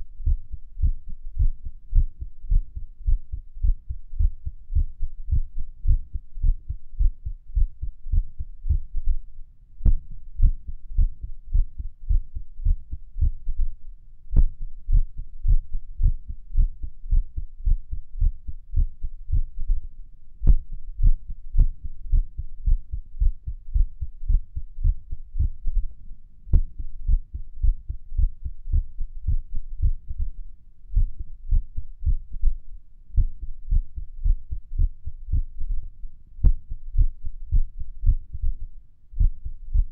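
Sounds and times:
heartbeat thumps: 0:00.0 - 0:39.9.

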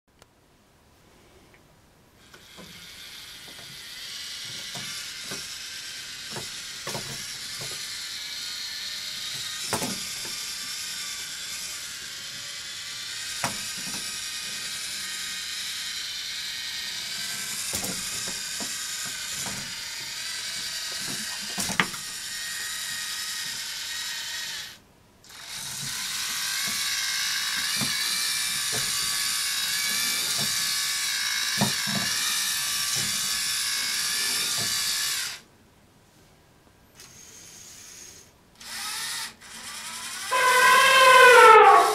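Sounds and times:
gears and legs clicking and knocking: 0:02.2 - 0:35.4
robot motors and gears whirring: 0:02.3 - 0:35.4, 0:37.0 - 0:41.9.

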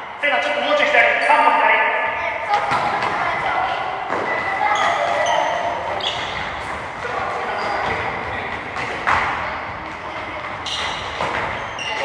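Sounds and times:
soccer balls kicked and bouncing: 0:02.5 - 0:12.0.

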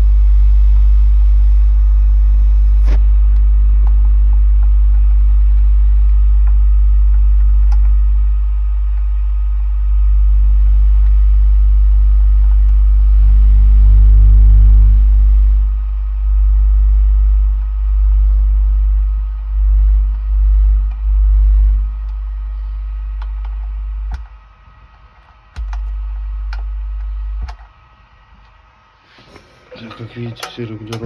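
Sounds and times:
deep bass from subwoofer: 0:00.0 - 0:24.5, 0:25.6 - 0:27.6.

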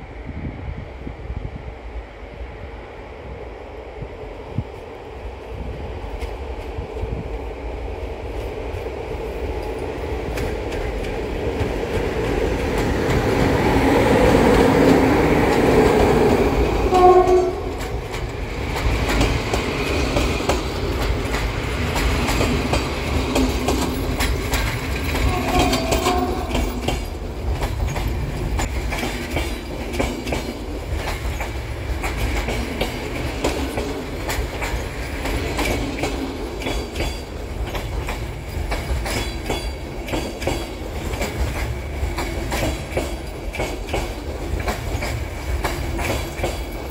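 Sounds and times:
electric locomotive running noise: 0:08.3 - 0:46.9
train horn blast: 0:16.8 - 0:18.0, 0:25.2 - 0:26.8.

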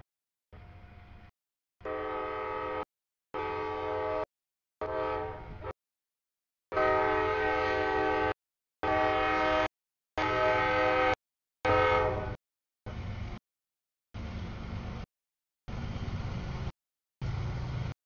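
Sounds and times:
passing train rumble: 0:00.6 - 0:02.8, 0:10.2 - 0:13.4, 0:14.2 - 0:15.1, 0:15.7 - 0:18.0
locomotive horn blasts: 0:01.8 - 0:05.8, 0:06.7 - 0:12.4.

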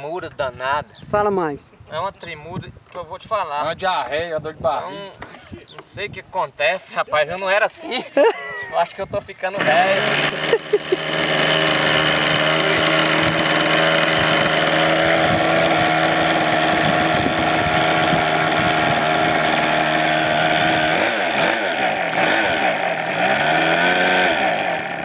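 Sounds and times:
model engine starting and idling: 0:09.5 - 0:25.0
hand-held starter: 0:09.6 - 0:25.0.

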